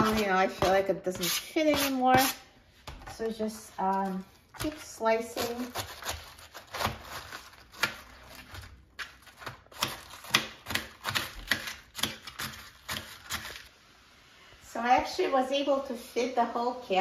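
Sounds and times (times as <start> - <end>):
knife slicing cabbage on board: 0.0 - 2.5, 4.6 - 13.7.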